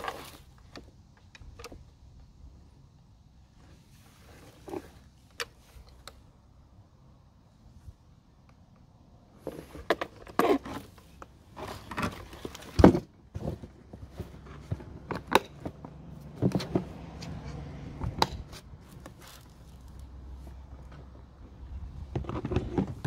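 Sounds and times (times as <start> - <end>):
plastic enclosure knocks and scrapes: 22.1 - 23.0.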